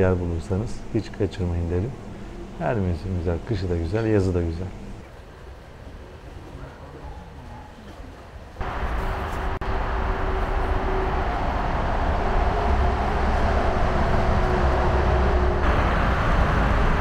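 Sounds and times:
road traffic rumble: 8.4 - 17.0.

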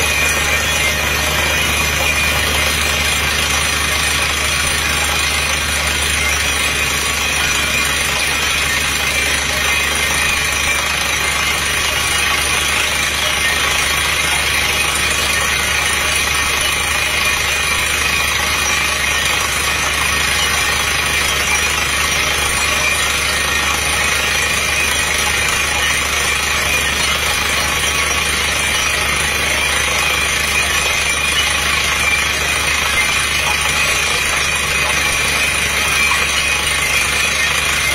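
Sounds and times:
drilling rig machine noise: 0.0 - 37.9.

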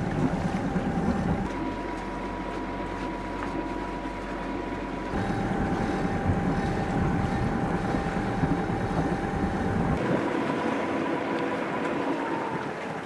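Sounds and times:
low rumble: 0.0 - 12.6
faint steady whine: 0.0 - 13.0
wind buffeting microphone: 5.2 - 13.0.

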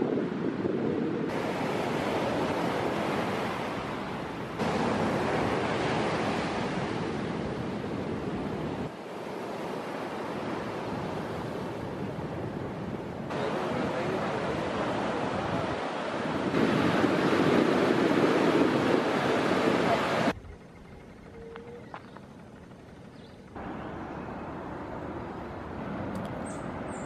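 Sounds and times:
surf breaking on a beach: 0.0 - 20.4
wind on microphone: 0.0 - 27.0.

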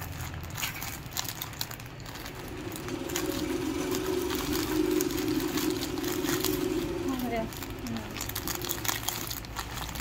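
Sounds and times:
plastic bag crinkling and tearing: 0.0 - 10.0
steady low hum: 2.0 - 10.0.

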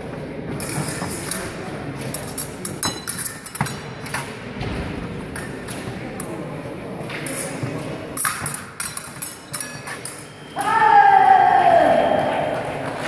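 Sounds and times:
hall background noise: 0.0 - 13.0
fencing blades clinking: 0.5 - 4.6, 5.3 - 10.8.

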